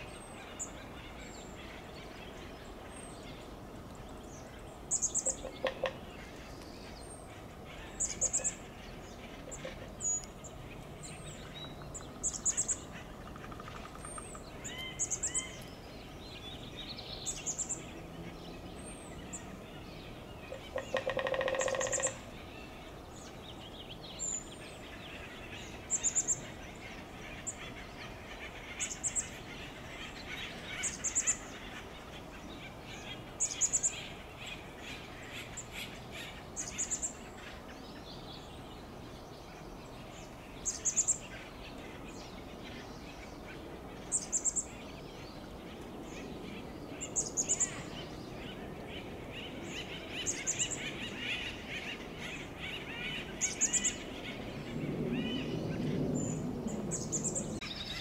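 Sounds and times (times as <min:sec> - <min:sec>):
woodpecker harsh call: 0:20.5 - 0:22.2
bird chatter: 0:20.5 - 0:22.3.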